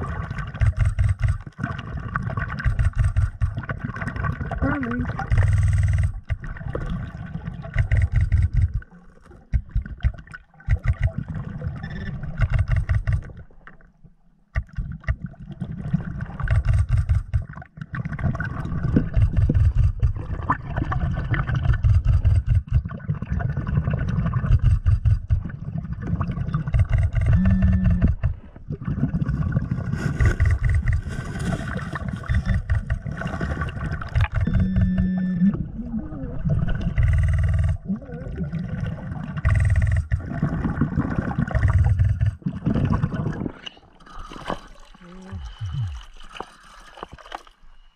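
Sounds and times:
underwater rumbling and churning: 0.0 - 47.9
motor-like hum: 4.6 - 6.5, 26.7 - 28.6, 34.0 - 38.0, 39.4 - 40.3, 41.5 - 42.4.

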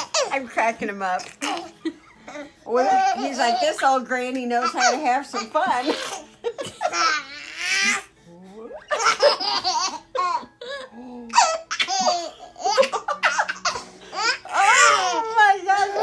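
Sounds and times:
infant laughing: 4.6 - 8.1, 8.8 - 16.0.

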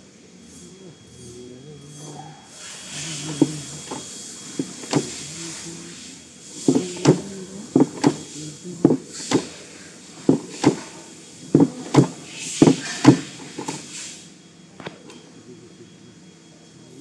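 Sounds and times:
welding machine clacking: 6.6 - 9.6.

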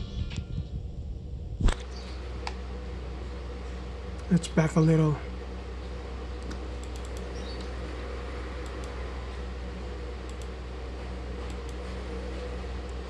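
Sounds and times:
low hum and hiss: 0.0 - 13.0
computer mouse clicks: 6.4 - 7.7, 8.6 - 9.0, 10.3 - 10.5.

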